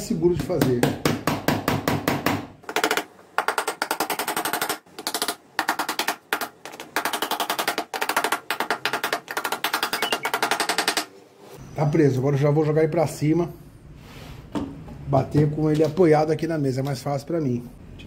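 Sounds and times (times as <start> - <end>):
hammer tapping nails into wood: 0.5 - 11.1.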